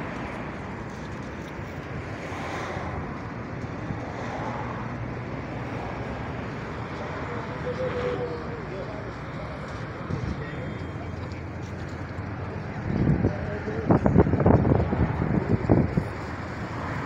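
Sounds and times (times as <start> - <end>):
road traffic hum: 0.0 - 17.0
faint voices: 6.4 - 17.0
wind on microphone: 12.7 - 17.0.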